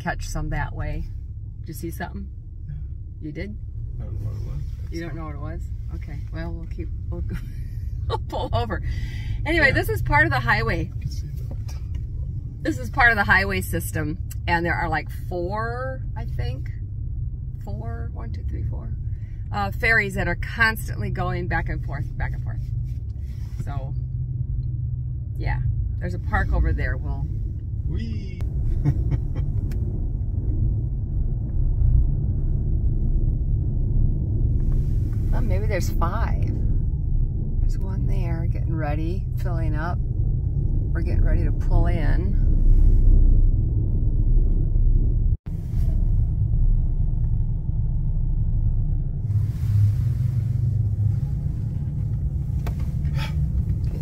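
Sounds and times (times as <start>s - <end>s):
low rumble of ferry engine: 0.0s - 54.0s.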